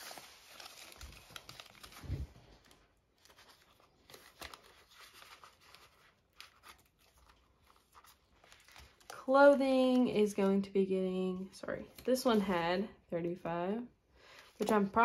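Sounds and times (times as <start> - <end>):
paper and plastic crinkling: 0.0 - 10.7, 14.2 - 15.0.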